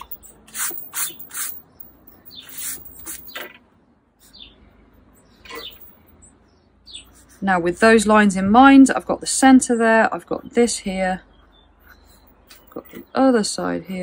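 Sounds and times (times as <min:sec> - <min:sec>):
pencil and eraser scratching paper: 0:07.0 - 0:07.7.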